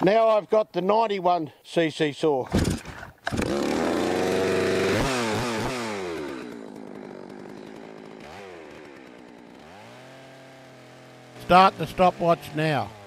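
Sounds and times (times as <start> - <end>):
chainsaw revving and idling: 3.3 - 13.0.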